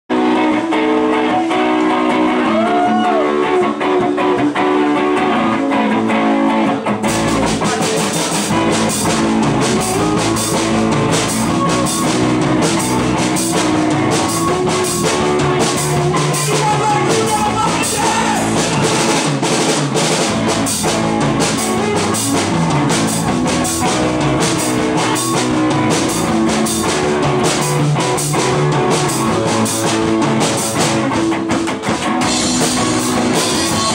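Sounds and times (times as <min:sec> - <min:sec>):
electric guitar playing: 0:00.1 - 0:33.9
live rock band playing: 0:00.1 - 0:33.9
drum kit with cymbals: 0:07.1 - 0:33.9.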